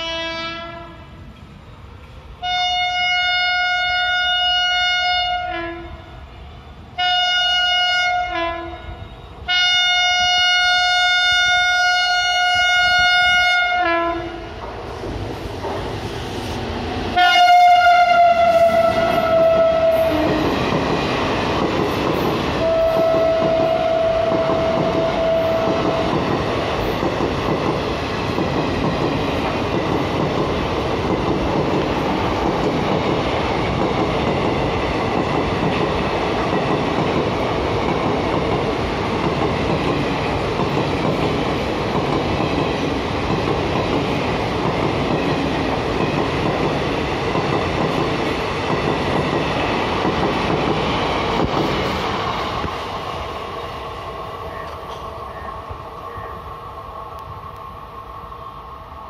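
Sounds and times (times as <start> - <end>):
locomotive horn blasts: 0.0 - 1.0, 2.4 - 6.0, 7.0 - 14.4, 17.2 - 20.4, 22.6 - 26.1
train coaches rolling past: 0.0 - 59.0.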